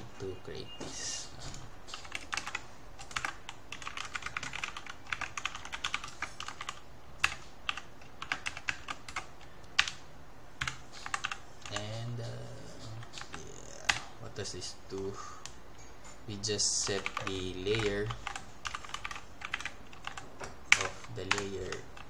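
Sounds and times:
typing on a computer keyboard: 1.9 - 10.0, 10.6 - 12.0, 16.8 - 22.0.

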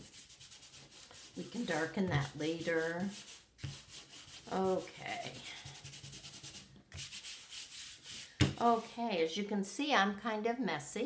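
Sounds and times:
fingers rubbing paper: 0.0 - 8.8.

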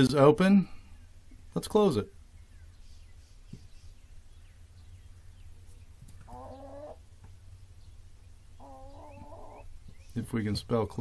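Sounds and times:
hen calling: 4.8 - 10.4.

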